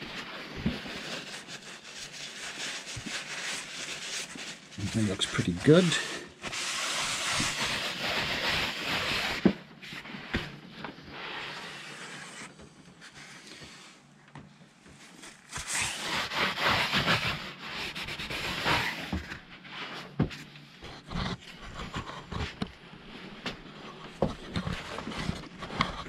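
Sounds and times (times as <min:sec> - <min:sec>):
paper towel wiping rubber mat: 0:00.0 - 0:10.5, 0:15.2 - 0:20.2.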